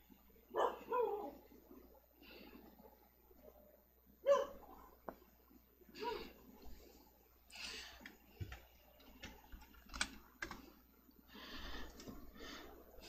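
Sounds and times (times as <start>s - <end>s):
keyboard and mouse clicks: 8.0s - 10.7s.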